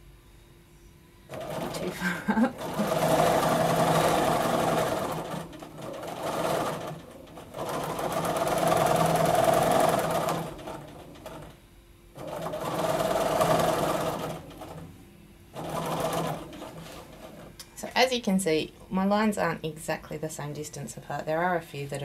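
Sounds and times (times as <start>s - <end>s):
sewing machine stitching: 1.3s - 11.6s, 12.2s - 14.9s, 15.6s - 17.5s.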